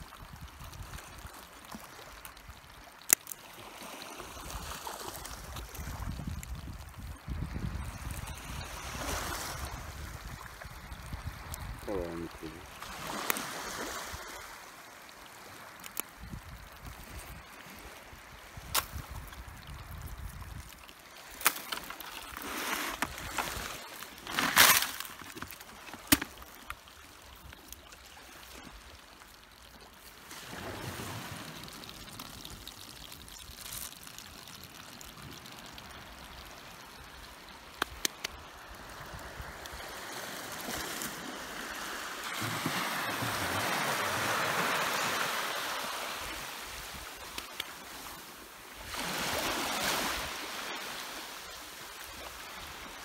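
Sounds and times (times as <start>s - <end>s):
small waves washing on shore: 0.0s - 53.0s
crab shells clicking and knocking: 20.5s - 26.8s, 37.8s - 38.4s.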